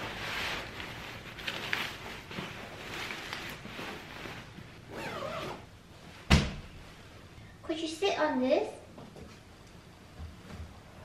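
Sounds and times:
fabric rustling and swishing: 0.0s - 7.2s.

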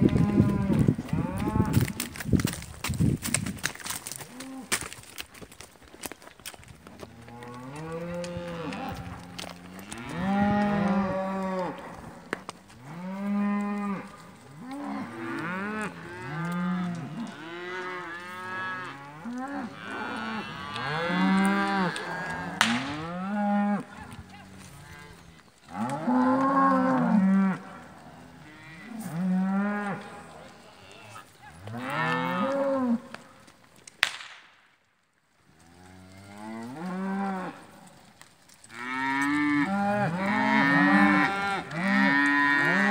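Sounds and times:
cattle mooing: 0.0s - 2.0s, 7.1s - 12.2s, 12.8s - 33.2s, 38.7s - 42.9s
sharp cracks: 21.4s - 23.2s, 33.1s - 34.9s.

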